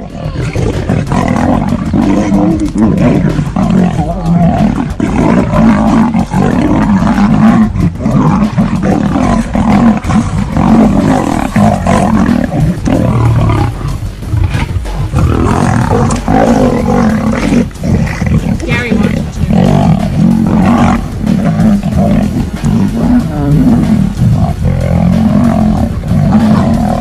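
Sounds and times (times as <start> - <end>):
big cats growling and roaring: 0.0 - 27.0.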